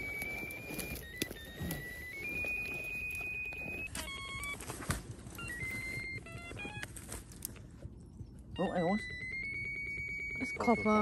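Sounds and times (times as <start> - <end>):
electronic tone and beeps: 0.0 - 4.6, 8.5 - 11.0.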